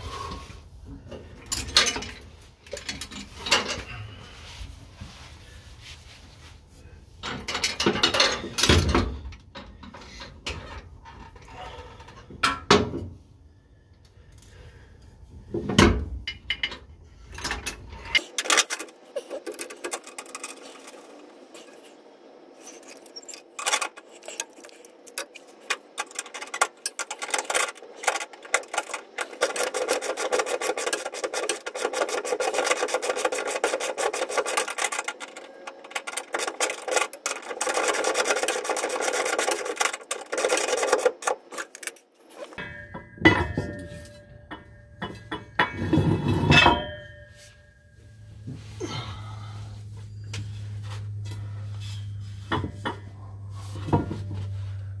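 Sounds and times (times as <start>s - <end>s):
hand tools scraping on parts: 1.1s - 4.2s, 16.3s - 47.7s
continuous rasping scrape: 17.2s - 42.8s, 48.3s - 55.0s.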